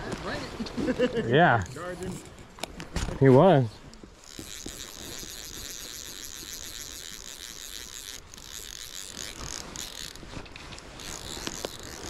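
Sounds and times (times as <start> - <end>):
fishing reel ratcheting: 1.6 - 2.8, 4.2 - 12.0.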